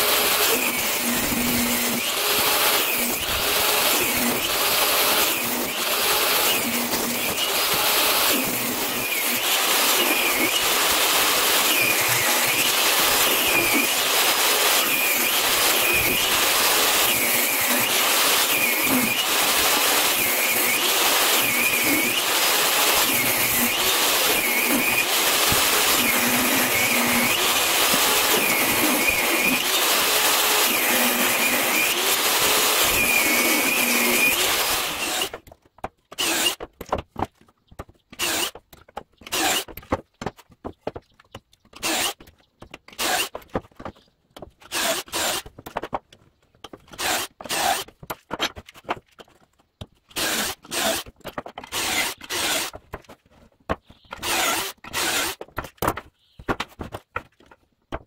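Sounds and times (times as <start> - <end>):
cordless drill boring holes: 0.0 - 35.4, 36.2 - 36.7, 38.1 - 38.6, 39.2 - 39.7, 41.8 - 42.3, 42.9 - 43.4, 44.6 - 45.5, 46.9 - 47.9, 50.1 - 52.8, 54.1 - 55.4
table saw ripping wood: 0.0 - 35.5, 38.1 - 40.1, 42.8 - 44.0, 44.6 - 46.0, 46.7 - 49.1, 50.1 - 53.3, 54.0 - 58.0.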